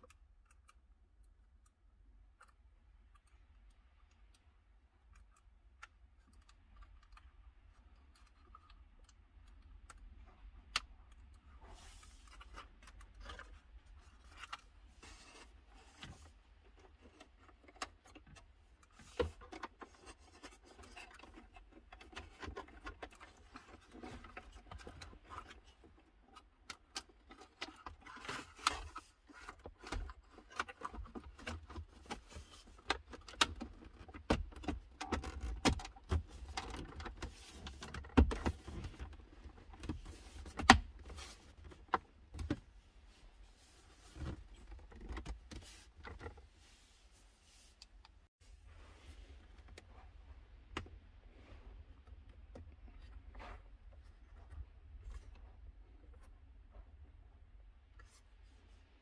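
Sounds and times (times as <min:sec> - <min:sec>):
plastic parts clicking and scraping: 0:00.0 - 0:46.5.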